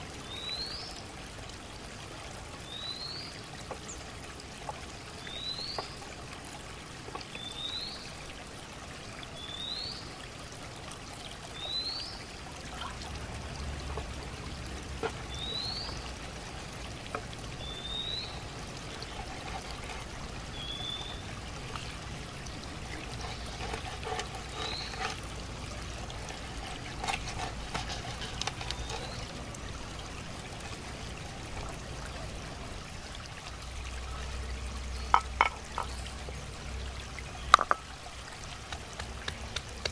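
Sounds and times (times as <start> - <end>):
running water: 0.0 - 39.9.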